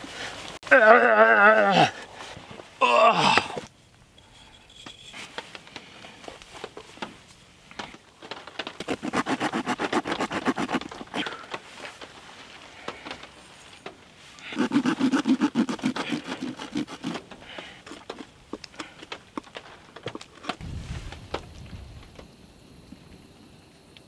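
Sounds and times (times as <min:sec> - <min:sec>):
knife sawing through carcass: 0:08.8 - 0:11.3, 0:14.4 - 0:18.3.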